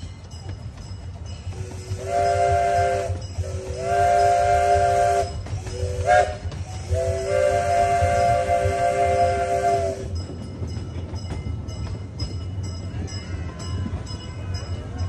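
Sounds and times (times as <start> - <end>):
low rumble of moving train: 0.0 - 15.0
steam whistle blasts: 1.6 - 10.1.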